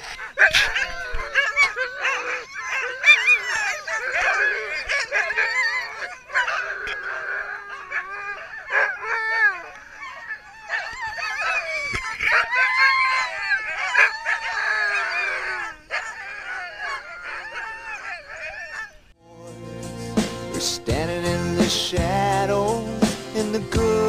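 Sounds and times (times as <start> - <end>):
dogs barking yelping and howling: 0.0 - 19.2.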